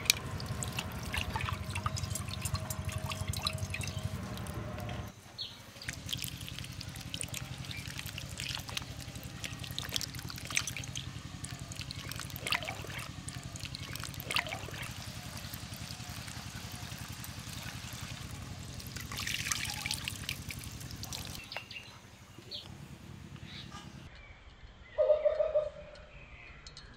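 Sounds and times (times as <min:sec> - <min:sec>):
water trickling and splashing: 0:00.0 - 0:21.8
low steady hum: 0:00.0 - 0:25.0.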